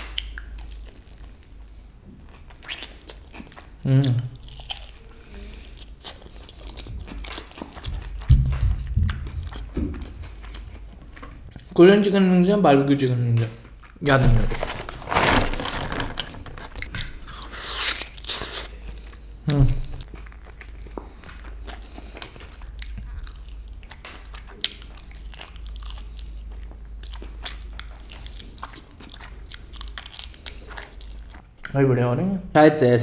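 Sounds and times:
biting and chewing chicken wing: 0:02.3 - 0:11.7, 0:19.9 - 0:31.4.

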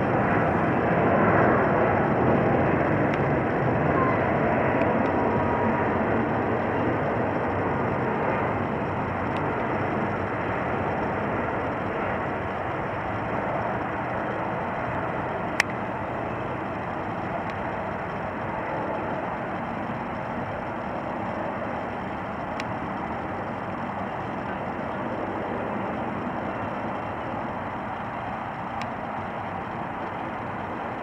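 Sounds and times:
jet engine roar: 0:00.0 - 0:31.0.

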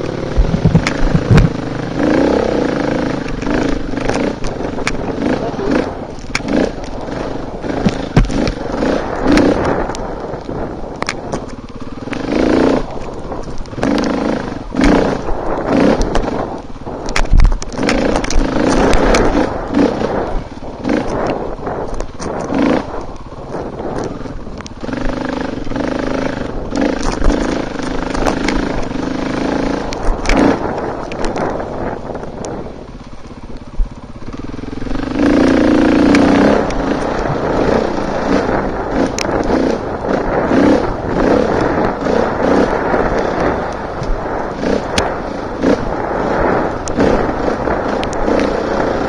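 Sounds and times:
sharp knocks and clatter: 0:00.0 - 0:31.7
dirt bike engine revving: 0:00.0 - 0:49.0.

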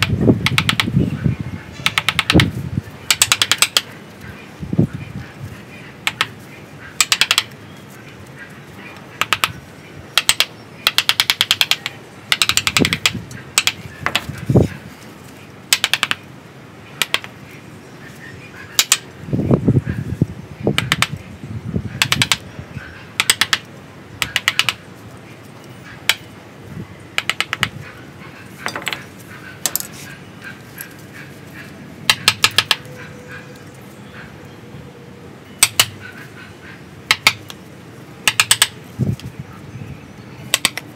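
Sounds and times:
chisel carving wood: 0:20.8 - 0:21.1, 0:22.0 - 0:22.4, 0:23.2 - 0:24.8, 0:38.2 - 0:38.7.

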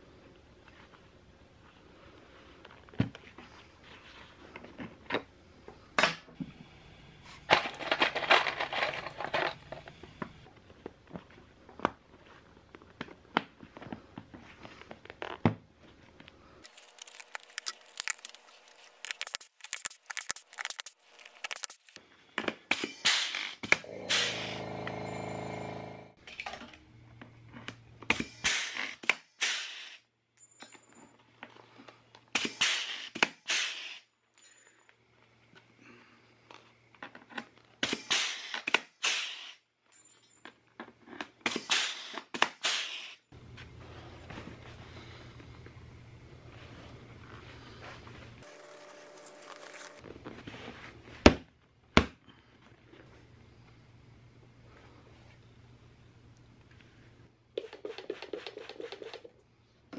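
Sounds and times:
steady buzz: 0:23.8 - 0:26.2.

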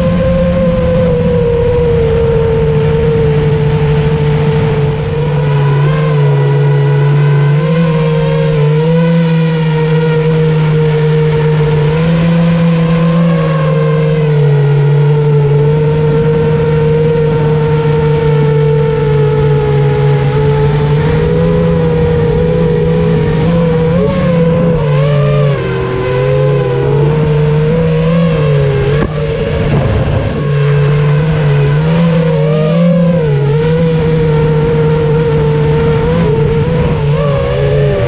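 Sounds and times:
wind rush: 0:00.0 - 0:07.8, 0:14.2 - 0:38.0
drone motors whining: 0:00.0 - 0:38.0.

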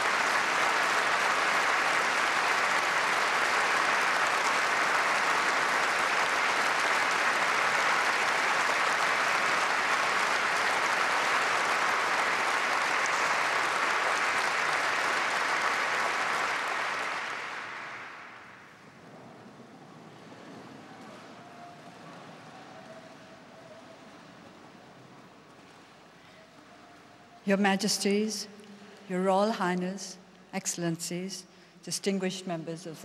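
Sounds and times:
audience applauding: 0:00.0 - 0:26.4.

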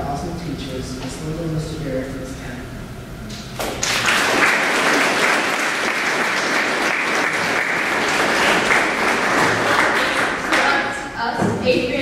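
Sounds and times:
audience applauding: 0:03.6 - 0:10.9.

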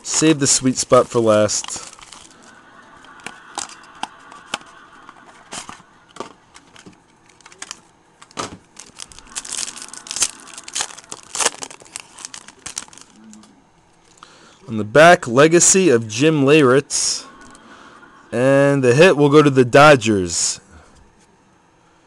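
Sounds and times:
foil wrapper crinkling: 0:00.2 - 0:02.5, 0:06.6 - 0:13.2.

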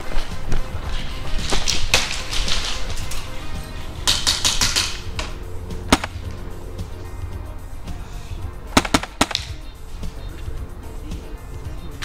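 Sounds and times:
background music: 0:00.0 - 0:12.0
airsoft rifle shots: 0:01.4 - 0:06.3, 0:08.7 - 0:09.6.

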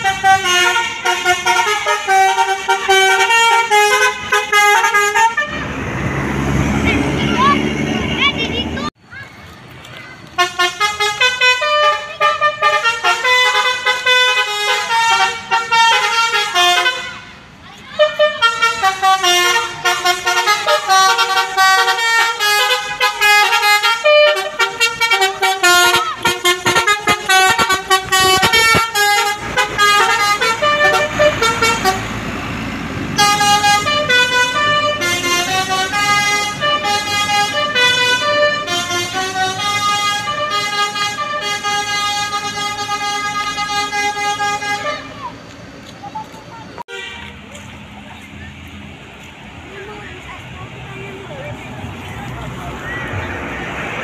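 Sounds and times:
multi-tone air horn melody: 0:00.0 - 0:05.7, 0:10.4 - 0:17.4, 0:18.0 - 0:32.1, 0:33.2 - 0:45.3, 0:46.8 - 0:47.4
bus engine passing: 0:00.0 - 0:54.0.

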